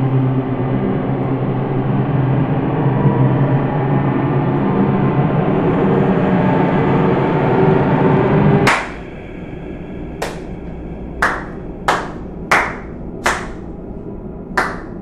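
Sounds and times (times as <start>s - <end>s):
loud dense drone: 0.0s - 15.0s
person clapping slowly: 8.7s - 9.1s, 10.2s - 10.6s, 11.2s - 13.7s, 14.6s - 15.0s.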